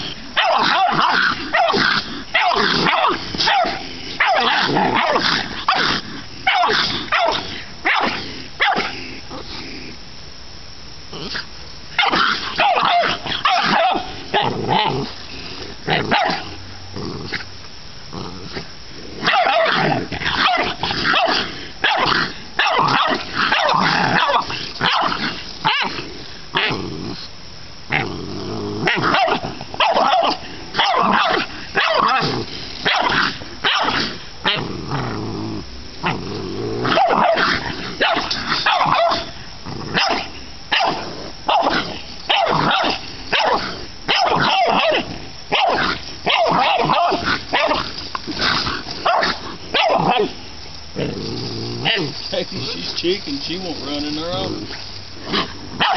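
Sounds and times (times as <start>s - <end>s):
dogs barking: 0.0s - 8.9s, 12.0s - 14.9s, 15.9s - 16.5s, 19.2s - 26.0s, 28.8s - 34.6s, 36.8s - 50.4s, 54.7s - 55.9s
dogs growling: 0.0s - 10.0s, 11.1s - 27.3s, 27.9s - 55.9s.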